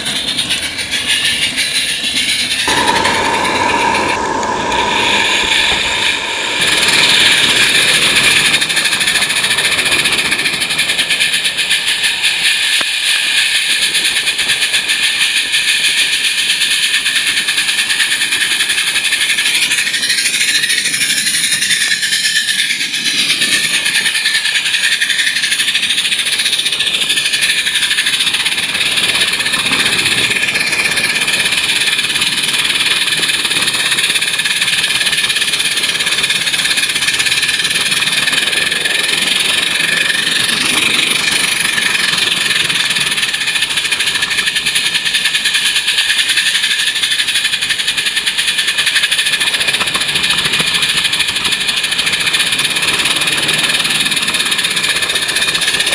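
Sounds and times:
high-pitched steam hiss: 0.0s - 55.9s.

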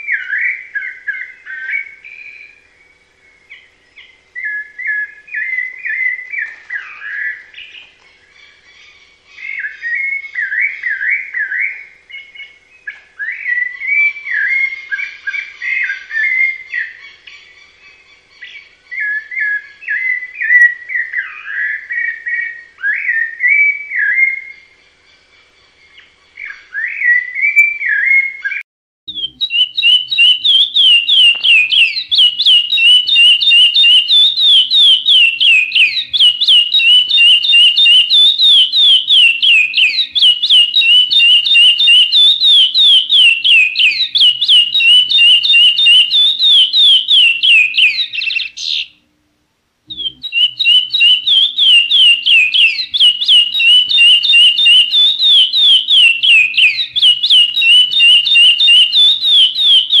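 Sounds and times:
songbird singing: 0.0s - 49.1s, 49.8s - 60.0s.

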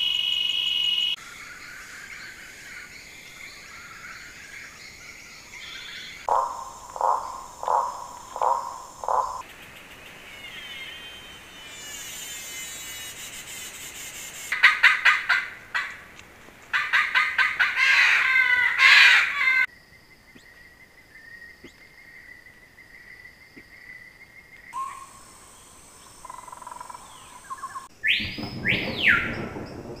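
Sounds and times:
bird calls: 0.0s - 30.0s
high-pitched buzzing: 11.7s - 14.5s
falling whistles: 27.6s - 29.8s.

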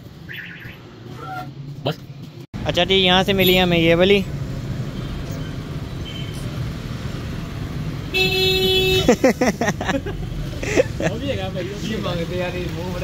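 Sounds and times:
street traffic noise: 0.0s - 13.0s
vehicle horn honking: 8.1s - 9.1s.

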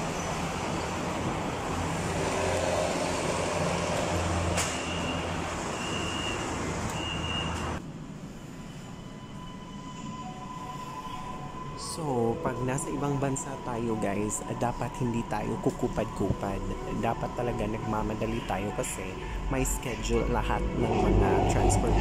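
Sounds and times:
station noise: 0.0s - 22.0s
train rumbling: 0.0s - 22.0s
short high door warning beeps: 4.8s - 7.6s.

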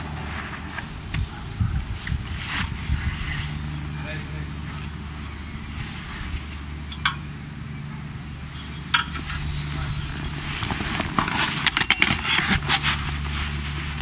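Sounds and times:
steady low hum: 0.0s - 14.0s
metal clanks: 11.0s - 13.0s.

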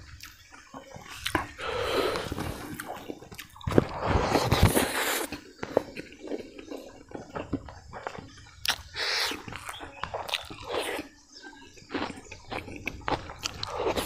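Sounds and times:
wet mouth smacking and chewing: 0.2s - 14.0s
sucking and breathing: 1.5s - 3.1s.

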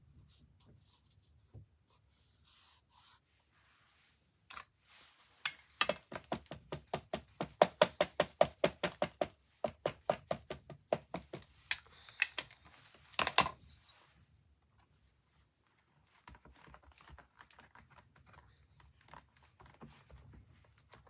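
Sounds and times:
ink pad tapping on stamp: 5.8s - 11.4s
soft rustles and clicks: 11.4s - 21.0s.

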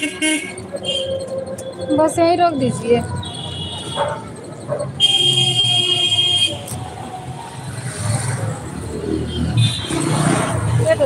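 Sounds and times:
low rumble of traffic: 0.0s - 11.0s
vehicle horn honking: 5.0s - 6.6s.

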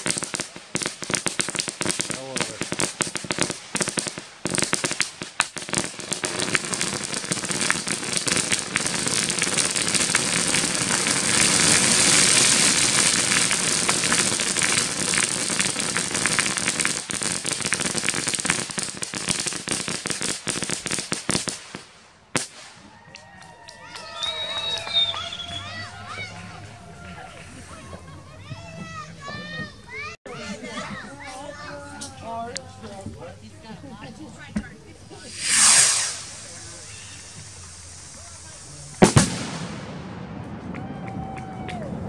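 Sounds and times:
firework crackling: 0.0s - 30.1s, 30.7s - 42.0s
sharp firework pop: 35.3s - 37.8s, 39.0s - 41.4s.

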